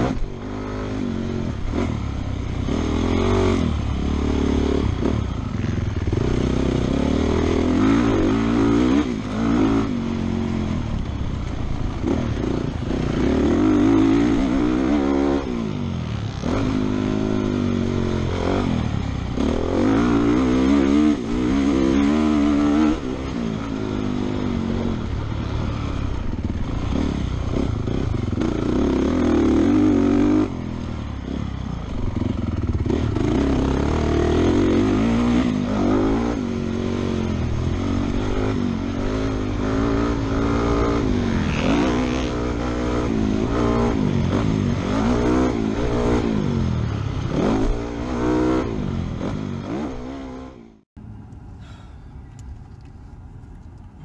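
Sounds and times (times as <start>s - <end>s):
motocross bike engine revving: 0.0s - 10.8s, 11.8s - 31.4s, 32.0s - 50.7s.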